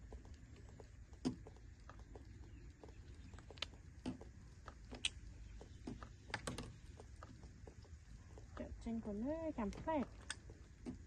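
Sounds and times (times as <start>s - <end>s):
baby monkey sucking bottle: 0.0s - 5.3s.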